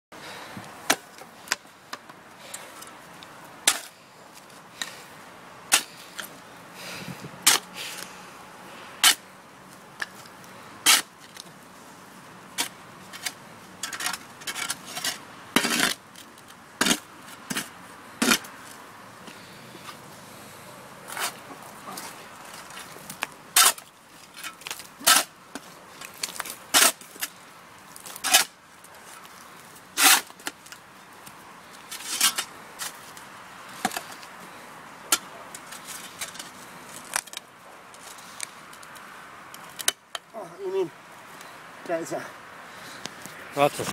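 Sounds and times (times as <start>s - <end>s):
spade scraping soil: 10.8s - 11.4s, 12.6s - 16.0s, 16.8s - 18.5s, 21.1s - 25.4s, 30.0s - 30.3s, 31.9s - 33.0s.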